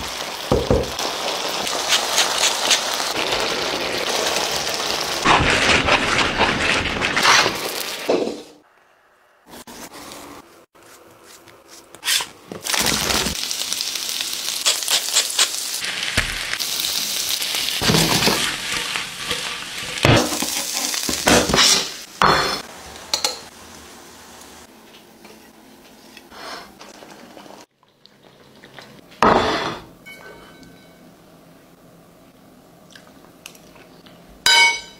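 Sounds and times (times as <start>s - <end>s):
food sizzling in a pan: 0.0s - 5.4s, 12.6s - 24.7s.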